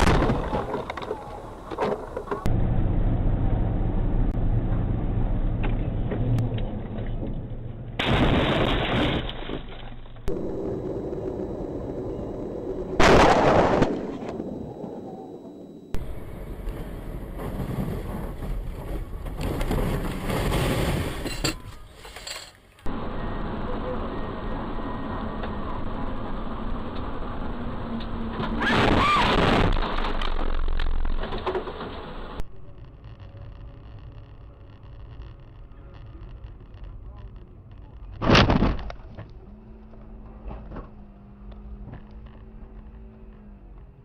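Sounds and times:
engine and road rumble: 0:00.0 - 0:44.0.

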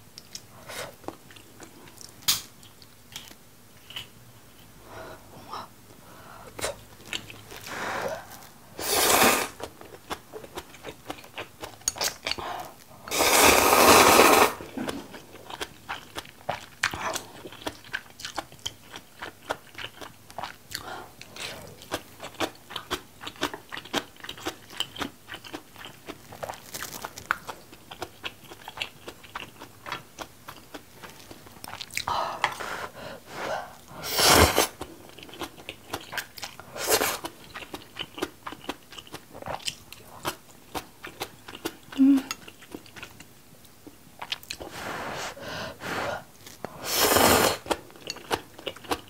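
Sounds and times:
wet chewing and crunching: 0:06.9 - 0:08.6, 0:09.6 - 0:12.9, 0:14.7 - 0:32.6, 0:34.8 - 0:44.7, 0:47.6 - 0:49.0
noodle slurps: 0:08.8 - 0:09.6, 0:13.1 - 0:14.6, 0:46.8 - 0:47.8.

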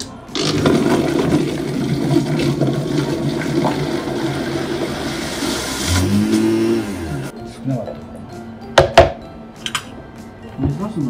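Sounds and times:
churning liquid: 0:00.3 - 0:07.3
blender motor hum: 0:04.7 - 0:07.3.

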